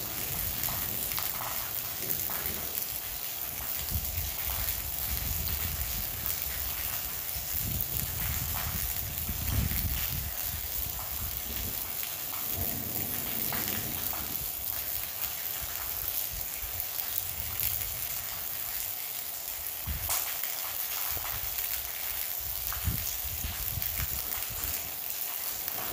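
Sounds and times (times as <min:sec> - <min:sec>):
thunder rumbles: 0:00.0 - 0:18.3, 0:25.5 - 0:25.9
rain hissing: 0:00.0 - 0:25.9.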